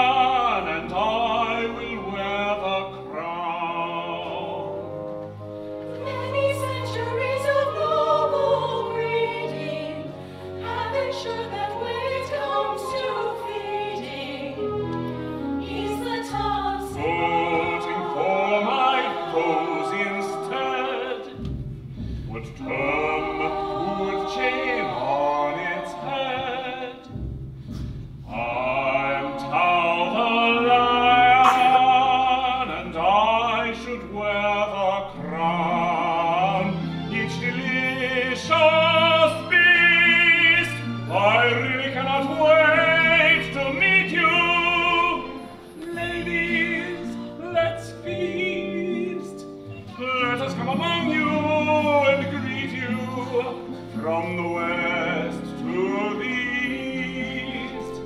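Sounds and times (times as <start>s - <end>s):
opera singing with vibrato: 6.0s - 21.4s, 22.3s - 27.1s, 28.3s - 58.0s.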